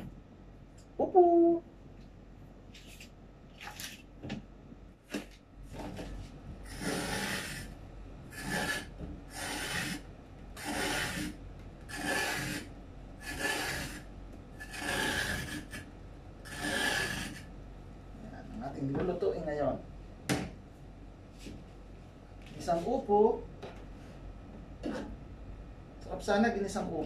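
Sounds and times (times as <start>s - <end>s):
peeler scraping gourd skin: 6.6s - 7.7s, 8.3s - 10.0s, 10.6s - 14.0s, 14.6s - 17.5s.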